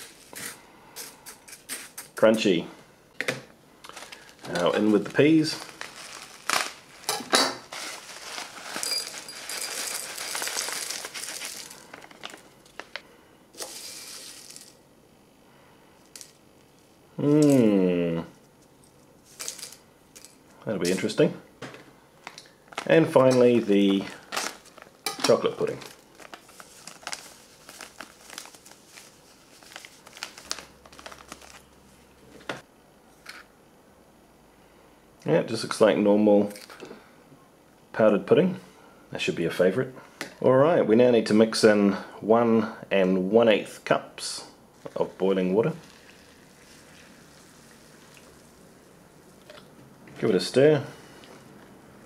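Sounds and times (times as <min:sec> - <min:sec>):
plastic pouch crinkling: 0:03.8 - 0:13.0, 0:22.6 - 0:31.9
dry peas rattling into a bowl: 0:05.4 - 0:12.9, 0:13.6 - 0:14.8, 0:19.3 - 0:21.0
powder pouring into bowl: 0:07.9 - 0:12.5, 0:45.7 - 0:49.7.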